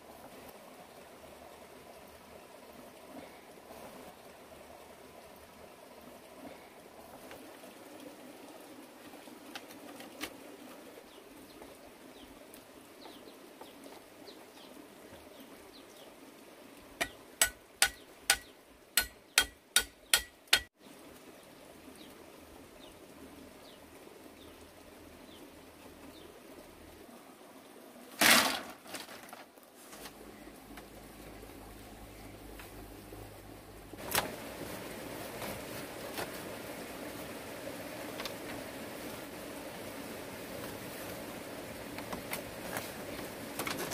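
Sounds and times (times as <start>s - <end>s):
faint forest background: 0.0s - 43.9s
sharp blows on bamboo pole: 17.0s - 20.7s
rustling clatter: 28.2s - 30.2s.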